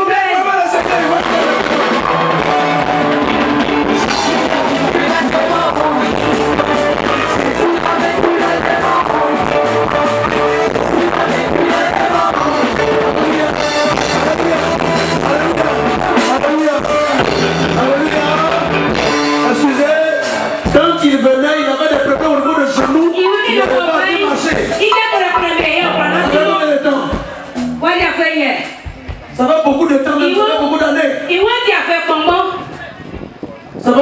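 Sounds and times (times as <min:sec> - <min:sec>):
live band playing: 0:00.4 - 0:20.8, 0:22.8 - 0:29.3
person singing: 0:24.9 - 0:26.8.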